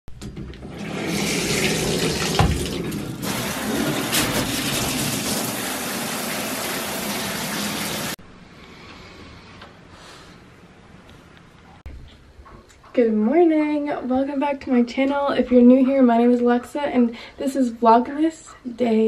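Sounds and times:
shower water rushing: 0:00.6 - 0:08.2.

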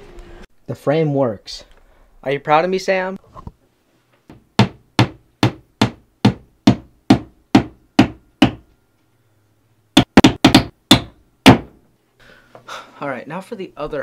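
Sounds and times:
hammer striking nail: 0:04.3 - 0:08.6, 0:10.0 - 0:11.8.

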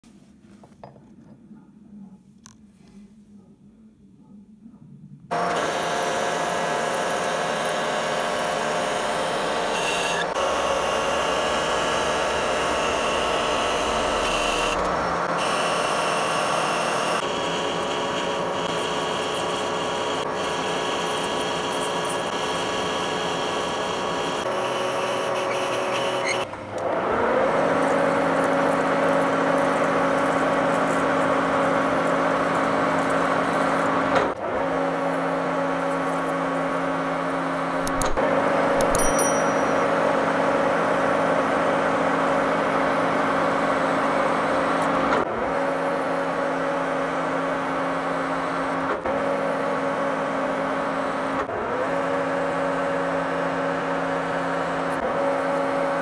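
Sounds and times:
metal lathe cutting steel: 0:05.4 - 0:34.1.

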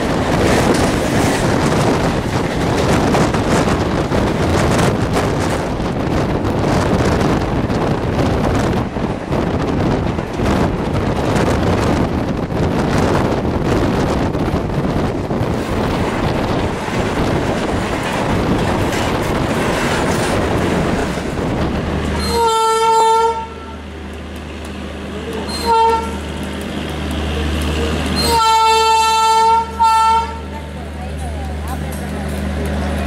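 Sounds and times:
rushing wind and rail noise: 0:00.0 - 0:33.0
electric locomotive horn: 0:22.2 - 0:23.8, 0:25.5 - 0:26.4, 0:28.2 - 0:30.6.

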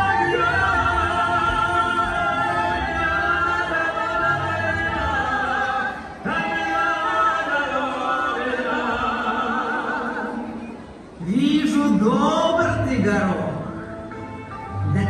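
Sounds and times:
voices singing with vibrato: 0:00.0 - 0:11.2.

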